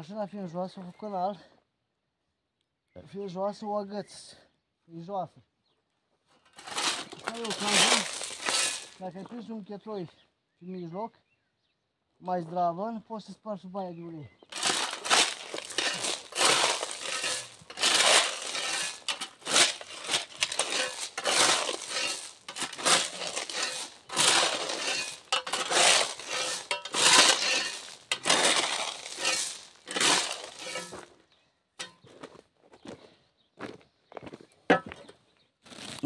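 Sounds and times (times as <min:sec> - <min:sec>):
shovel scraping gravel: 0:06.4 - 0:09.1, 0:14.5 - 0:31.1, 0:31.8 - 0:32.0.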